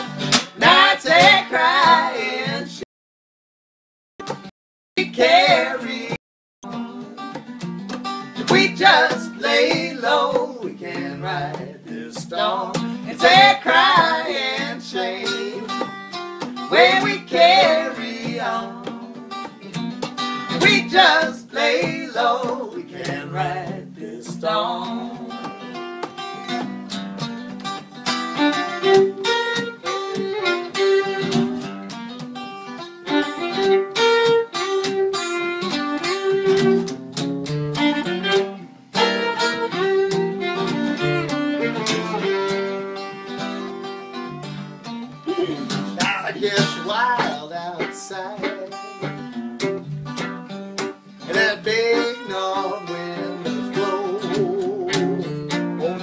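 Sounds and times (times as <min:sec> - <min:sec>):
picked acoustic guitar: 0:00.0 - 0:02.8, 0:04.2 - 0:56.0
fiddle bowed with vibrato: 0:37.8 - 0:43.8.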